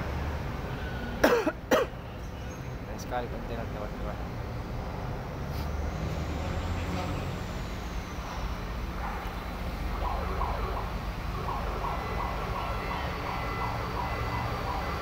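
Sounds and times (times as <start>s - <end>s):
pulsing warning alarm: 9.4s - 15.0s.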